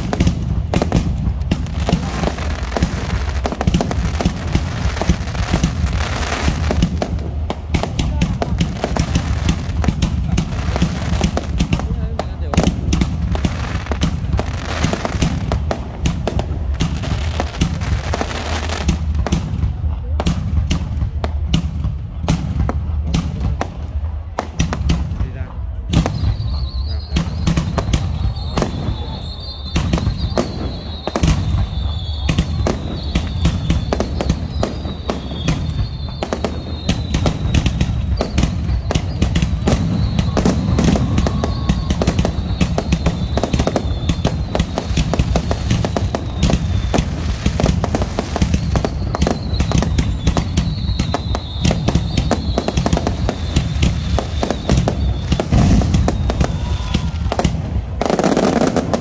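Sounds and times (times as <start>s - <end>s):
fireworks bangs and crackles: 0.0s - 59.0s.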